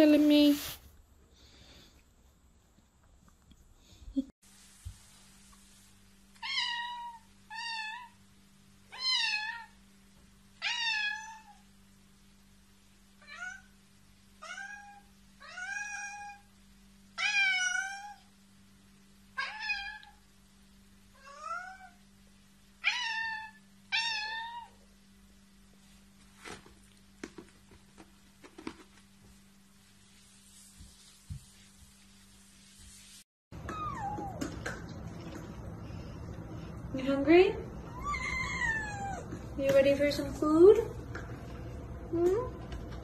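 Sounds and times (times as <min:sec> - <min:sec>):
faint steady hum: 0:00.0 - 0:43.0
cat meowing: 0:06.4 - 0:08.2, 0:08.9 - 0:09.7, 0:14.4 - 0:16.5, 0:21.2 - 0:22.0, 0:22.8 - 0:24.8, 0:37.9 - 0:39.3.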